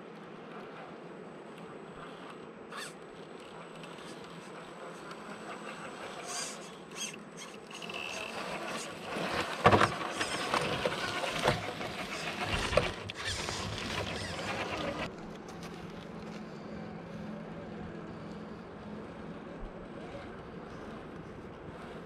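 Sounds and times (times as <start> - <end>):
electric motor whining: 5.4 - 15.1.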